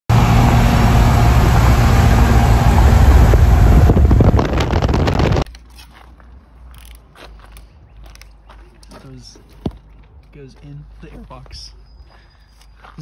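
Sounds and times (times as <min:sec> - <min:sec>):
engine and tyre drone: 0:00.1 - 0:05.5
wind buffeting microphone: 0:00.1 - 0:05.5
highway road and wind noise: 0:00.1 - 0:12.7.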